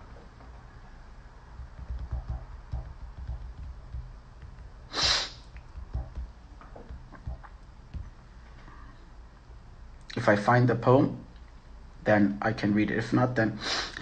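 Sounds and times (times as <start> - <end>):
handling bumps and clicks: 1.6 - 4.8, 5.5 - 8.3
sharp breath through the nose: 4.9 - 5.4.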